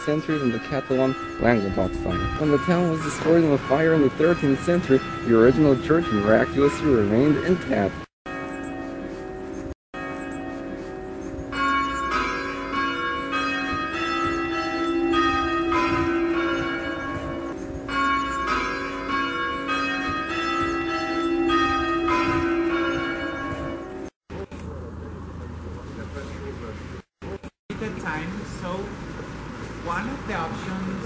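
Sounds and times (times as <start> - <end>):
church bells ringing: 0.0 - 24.1.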